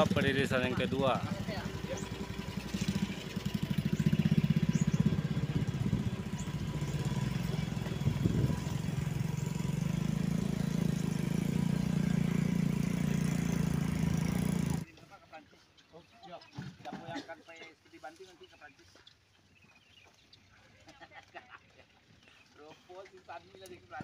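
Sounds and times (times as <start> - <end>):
vehicle engine low rumble: 0.0 - 14.9.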